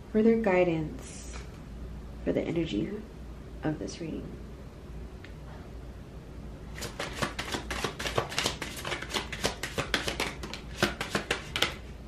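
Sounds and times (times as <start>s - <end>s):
cards being shuffled: 6.7s - 11.9s.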